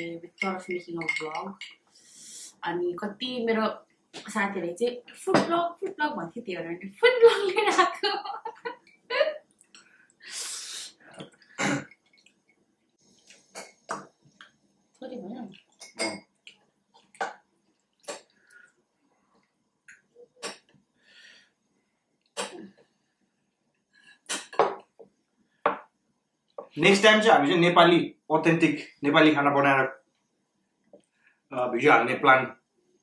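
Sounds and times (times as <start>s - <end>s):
utensils clinking against steel pot: 0.0s - 1.8s, 15.8s - 16.3s
short breathy noise: 10.2s - 11.2s.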